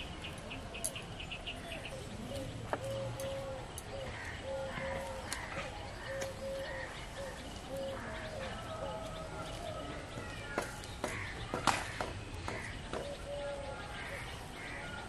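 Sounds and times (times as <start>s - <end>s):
small birds chirping: 0.0s - 15.0s
dove cooing: 1.8s - 9.8s, 13.0s - 14.9s.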